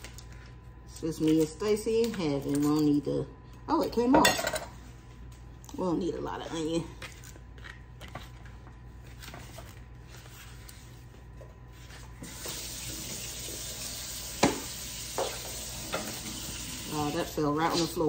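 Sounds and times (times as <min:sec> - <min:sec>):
water running into sink: 0:12.2 - 0:17.3.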